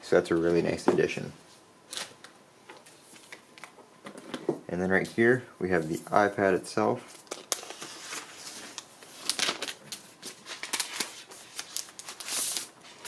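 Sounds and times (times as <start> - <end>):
plastic wrap hiss: 5.2 - 13.0
plastic wrap crinkling: 7.1 - 13.0.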